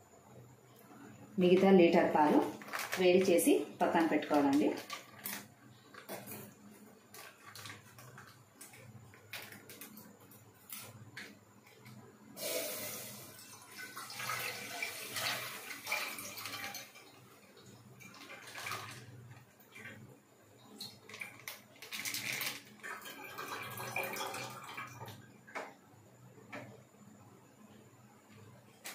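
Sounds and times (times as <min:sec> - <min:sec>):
liquid pouring: 0:12.4 - 0:19.9, 0:20.7 - 0:25.2.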